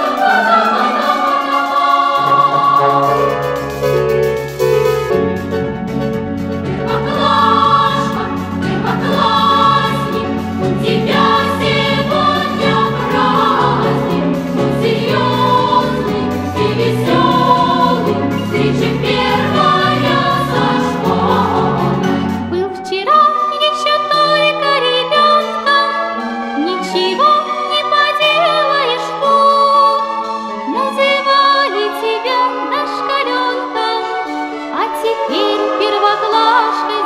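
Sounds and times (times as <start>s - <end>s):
bass accompaniment: 0.0s - 22.8s
choir singing: 0.0s - 37.0s.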